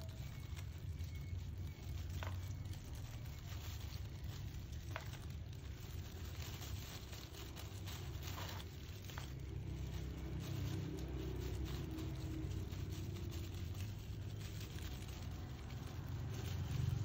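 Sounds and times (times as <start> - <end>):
low background hum: 0.0 - 17.0
brush scrubbing hair: 5.5 - 17.0.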